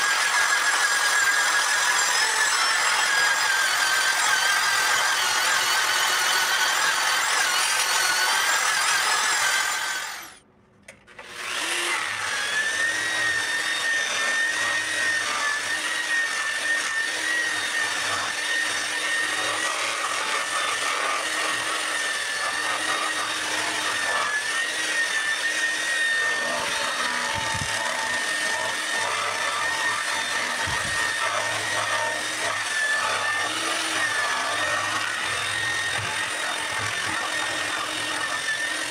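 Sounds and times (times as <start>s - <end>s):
angle grinder sanding wood: 11.3s - 38.9s.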